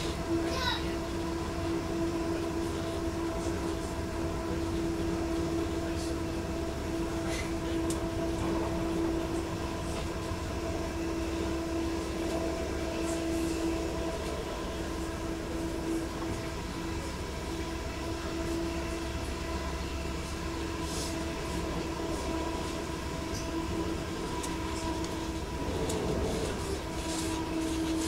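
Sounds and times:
train hum: 0.0 - 28.0
low rumble: 21.7 - 28.0.

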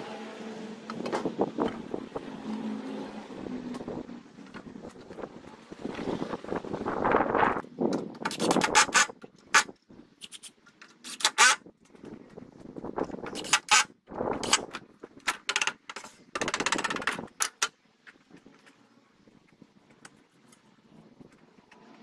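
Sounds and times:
boards clattering and scraping: 7.9 - 11.6, 13.1 - 17.8.

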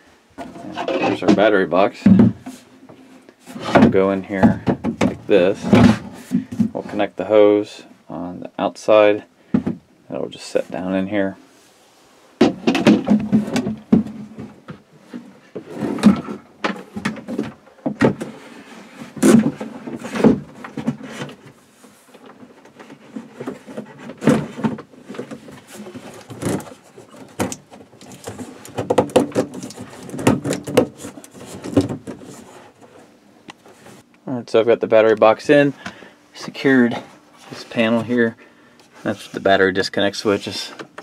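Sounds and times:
plastic knocking and scraping: 3.5 - 6.8, 12.4 - 34.0.

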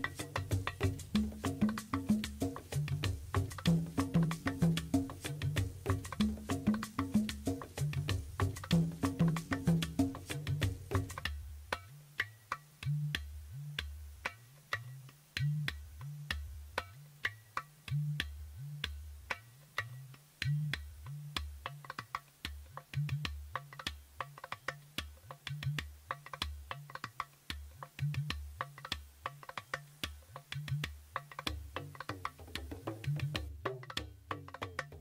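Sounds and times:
low drum beat: 0.0 - 11.5.

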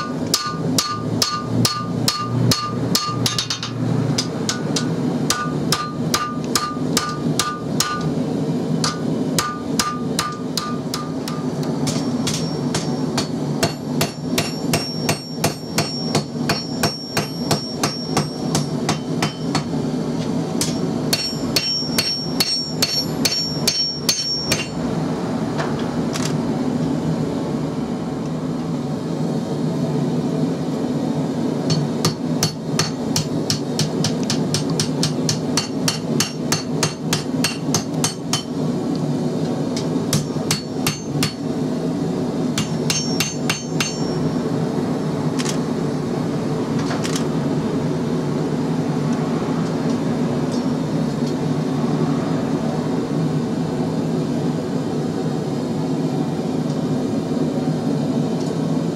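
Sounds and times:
hammer striking metal on anvil: 0.0 - 8.2, 8.8 - 19.8, 20.6 - 24.8, 31.7 - 38.6, 39.8 - 41.5, 42.6 - 44.4.

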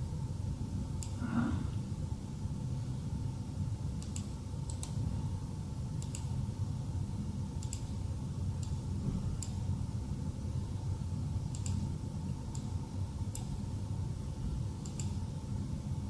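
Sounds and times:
steady low hum: 0.0 - 16.0
computer mouse clicks: 1.0 - 1.2, 4.0 - 5.0, 6.0 - 6.4, 7.6 - 8.0, 8.6 - 8.8, 9.4 - 9.6, 11.5 - 11.9, 12.5 - 12.7, 13.3 - 13.6, 14.8 - 15.2.

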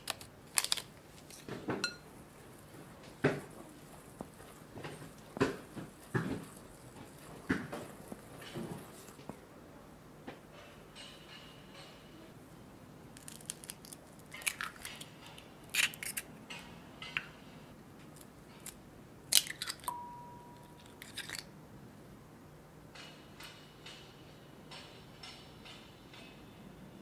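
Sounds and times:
eggs cracking: 0.0 - 1.5, 13.2 - 16.3, 18.2 - 19.9
utensils tapping glass bowls: 1.8 - 2.1.

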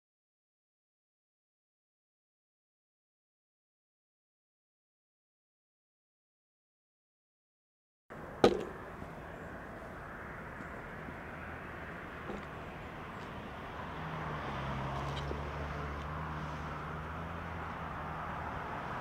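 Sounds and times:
low engine hum: 8.1 - 19.0
steady outdoor hiss: 8.1 - 19.0.

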